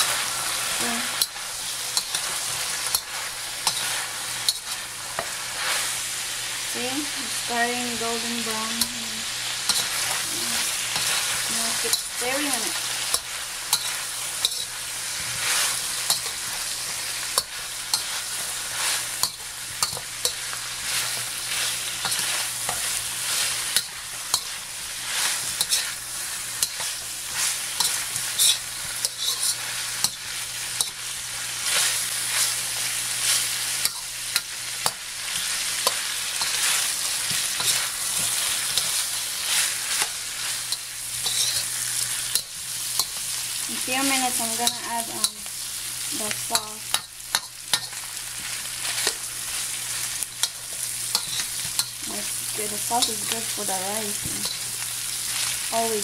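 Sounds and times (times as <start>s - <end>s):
chicken sizzling in oil: 0.0s - 56.0s
metal spatula scraping wok: 9.7s - 43.3s, 46.2s - 56.0s.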